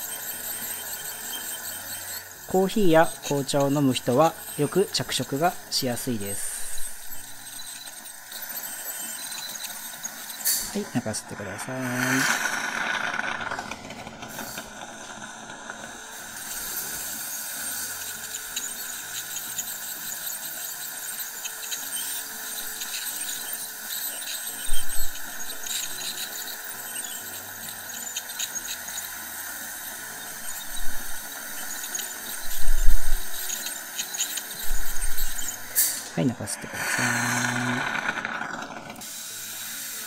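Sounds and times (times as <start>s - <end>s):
dental scaler whining: 0.0s - 40.0s
dental suction: 0.0s - 40.0s.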